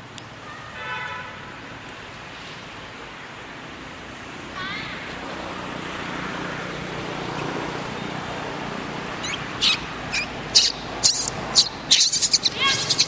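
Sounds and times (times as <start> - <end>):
monkey shrieking: 9.2 - 13.0.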